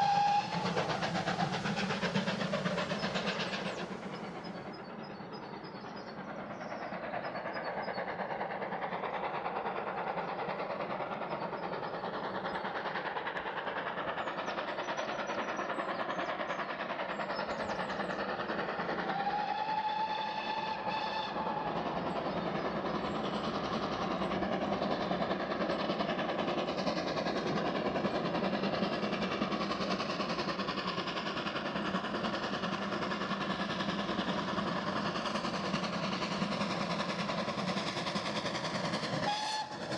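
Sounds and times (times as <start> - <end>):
steam whistle blast: 0.0 - 0.8, 19.2 - 21.7, 39.2 - 39.9
steam locomotive exhaust: 0.0 - 39.9.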